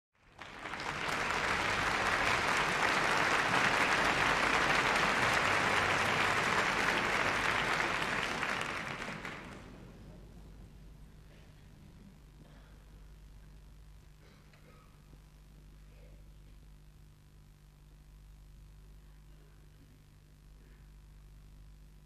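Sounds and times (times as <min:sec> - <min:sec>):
audience applauding: 0:00.2 - 0:09.8.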